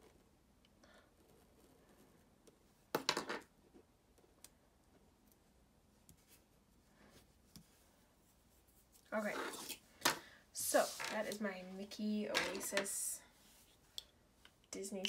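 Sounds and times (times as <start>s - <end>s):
hands rubbing stickers on paper: 10.7s - 11.4s.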